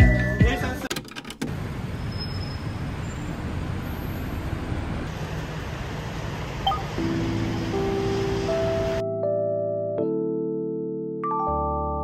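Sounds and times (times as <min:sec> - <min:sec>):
city street traffic rumble: 0:00.7 - 0:09.0.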